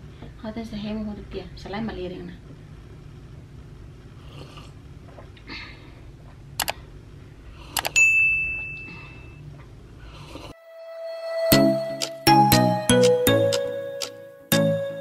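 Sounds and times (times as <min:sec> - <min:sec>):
room hum: 0:00.0 - 0:15.0
bell ding: 0:08.0 - 0:09.4.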